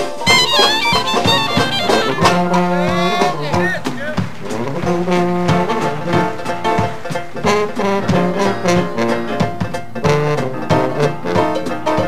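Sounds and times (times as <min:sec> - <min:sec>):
clarinet: 0:00.0 - 0:06.7, 0:07.3 - 0:12.0
banjo: 0:00.0 - 0:12.0
brass: 0:00.0 - 0:12.0
drums: 0:00.0 - 0:12.0
jazz band playing: 0:00.0 - 0:12.0
sousaphone bass: 0:00.2 - 0:06.4.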